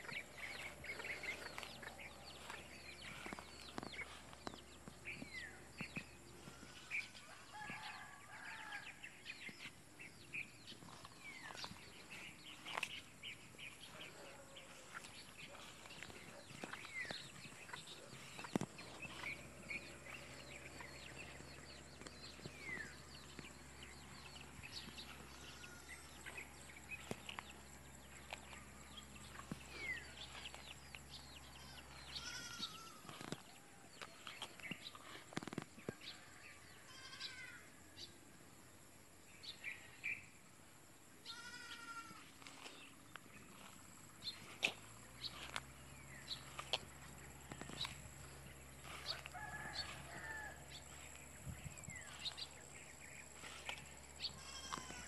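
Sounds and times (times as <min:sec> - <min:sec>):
bird calls: 0:10.4 - 0:35.6, 0:41.3 - 0:55.0
goats bleating: 0:25.2 - 0:26.4, 0:31.5 - 0:33.1, 0:36.9 - 0:37.6, 0:41.2 - 0:42.3, 0:54.2 - 0:55.0.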